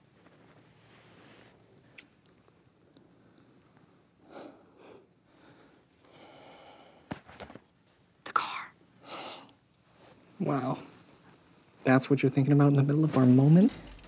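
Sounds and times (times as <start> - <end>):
kissing sounds: 1.9 - 2.2
soft breathing: 2.8 - 7.3.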